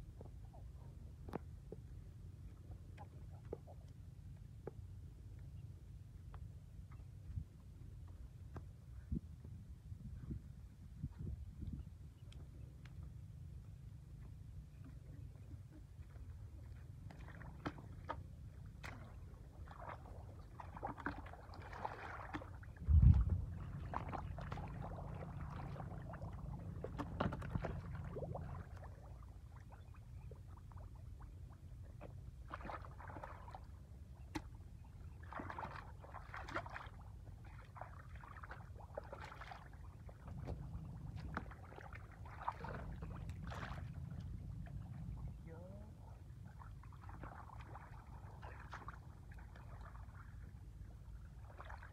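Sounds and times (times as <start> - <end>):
low steady rumble: 0.0 - 51.9
hands splashing in muddy water: 17.0 - 26.2, 35.2 - 40.6.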